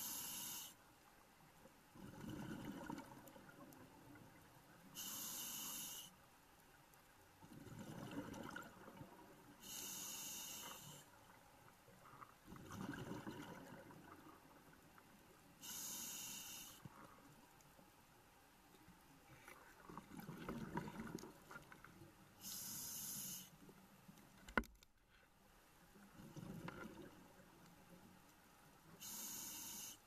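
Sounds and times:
regulator inhale hiss: 0.0 - 0.8, 4.9 - 6.2, 9.6 - 11.2, 15.6 - 17.2, 22.4 - 23.6, 29.0 - 30.0
exhaled air bubbling: 2.0 - 4.0, 7.4 - 9.4, 12.4 - 14.4, 19.8 - 21.8, 26.2 - 27.3.

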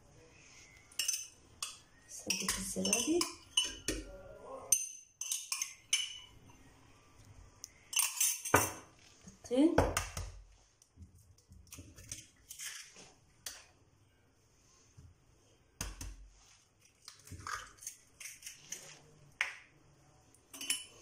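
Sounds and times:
kitchen clicks and knocks: 7.9 - 8.9.

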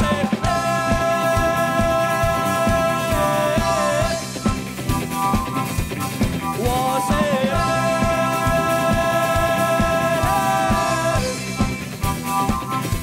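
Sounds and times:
man singing a belted note: 0.0 - 4.3, 6.6 - 11.5
drum kit: 0.0 - 13.0
electric guitars: 0.0 - 13.0.

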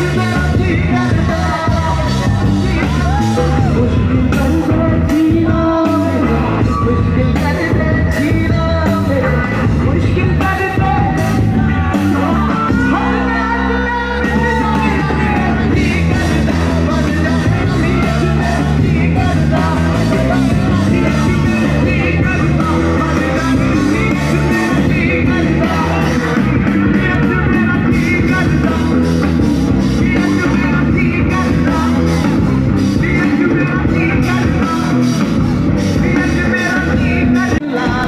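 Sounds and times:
drums: 0.0 - 38.0
electric guitars: 0.0 - 38.0
person singing: 0.0 - 38.0
crowd shouting: 0.9 - 4.8, 10.5 - 28.9.

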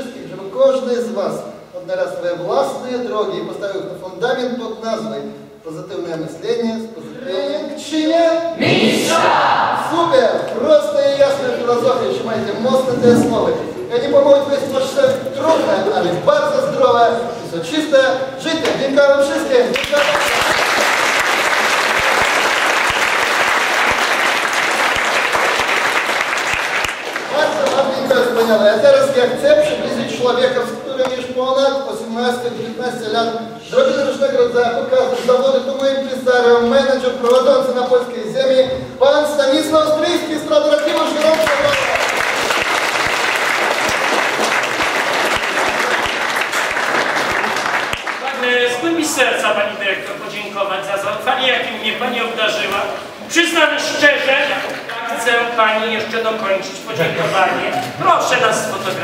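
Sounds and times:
audience applauding: 19.7 - 28.0, 40.8 - 48.8.

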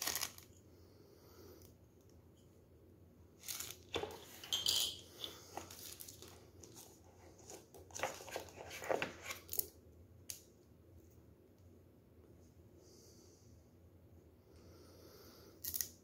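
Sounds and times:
plastic wrapping crinkling: 0.0 - 0.5, 3.4 - 4.5
cardboard rustling and scraping: 5.3 - 9.5.

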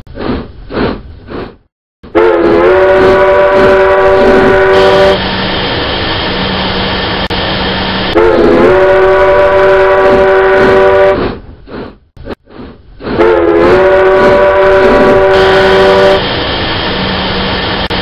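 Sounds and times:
steam locomotive whistle: 2.1 - 5.2, 8.1 - 11.2, 13.2 - 16.3
steam hissing: 13.8 - 18.0.

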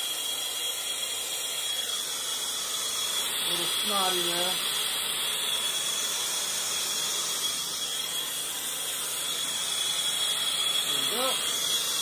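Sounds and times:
torch flame hissing: 0.0 - 12.0.

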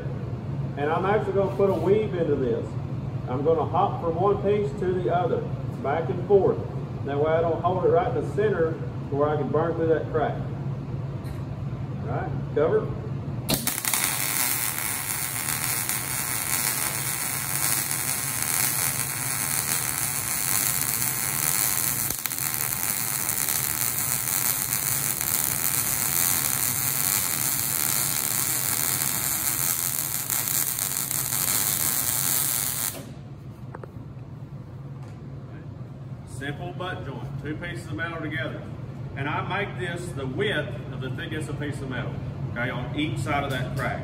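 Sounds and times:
welding arc crackling sizzle: 13.5 - 33.2.

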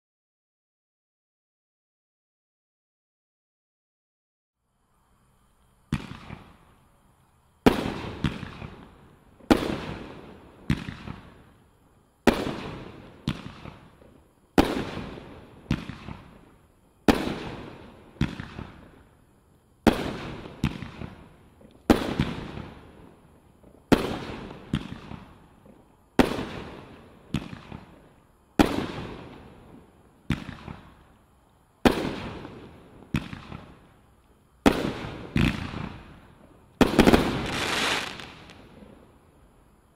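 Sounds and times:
fireworks bangs: 5.8 - 6.8, 7.6 - 11.6, 12.2 - 19.0, 19.8 - 31.1, 31.8 - 34.0, 34.6 - 39.1.

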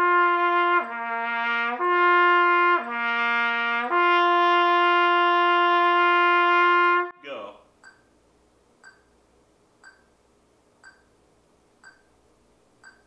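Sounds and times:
trumpet playing lip slurs: 0.0 - 7.2.

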